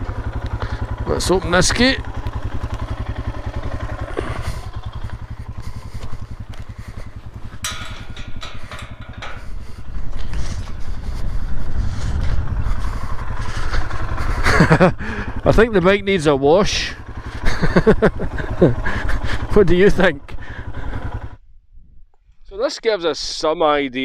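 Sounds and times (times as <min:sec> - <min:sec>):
motorcycle engine idling: 0:00.0 - 0:21.5
metal gate latch clanking: 0:02.0 - 0:10.9.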